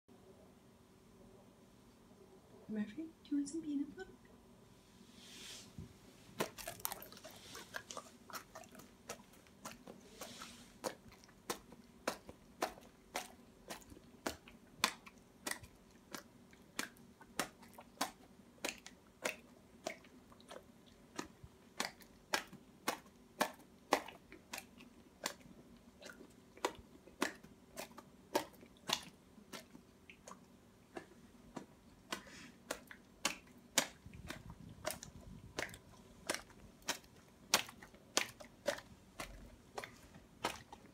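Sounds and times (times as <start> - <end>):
dog smacking lips wet clicks: 10.8 - 40.9.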